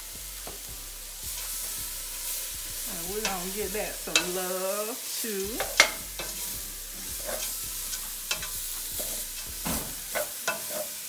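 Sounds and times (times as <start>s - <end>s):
food sizzling in a pan: 0.0s - 11.0s
utensil scraping a pan: 1.2s - 4.4s, 5.5s - 11.0s.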